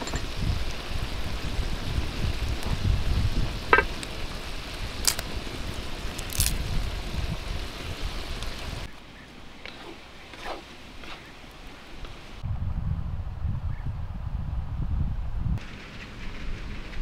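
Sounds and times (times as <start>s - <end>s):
vegetables and meat sizzling: 0.0s - 8.9s
soft outdoor ambience: 0.0s - 13.5s.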